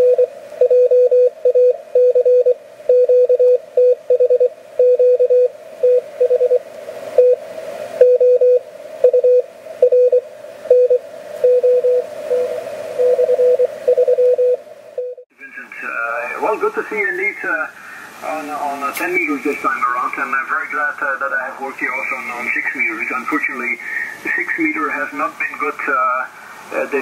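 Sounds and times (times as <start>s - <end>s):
morse code tone: 8.0s - 15.2s
radio band noise hiss: 15.3s - 27.0s.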